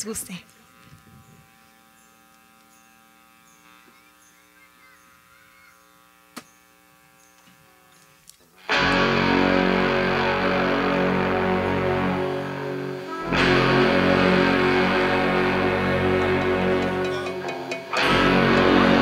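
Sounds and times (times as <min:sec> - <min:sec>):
amplifier hum: 0:00.0 - 0:19.0
live band led by guitar: 0:08.6 - 0:19.0.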